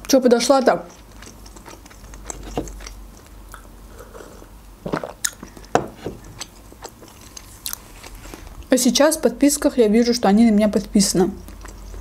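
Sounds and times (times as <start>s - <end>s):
wet mouth clicks: 0.9s - 5.7s
person sipping and swallowing: 2.3s - 8.6s.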